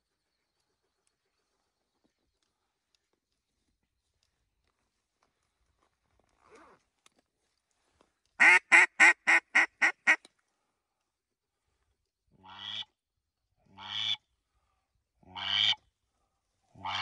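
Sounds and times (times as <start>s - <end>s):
duck call quacks: 8.4s - 10.2s, 12.4s - 12.9s, 13.7s - 14.2s, 15.2s - 15.8s, 16.8s - 17.0s.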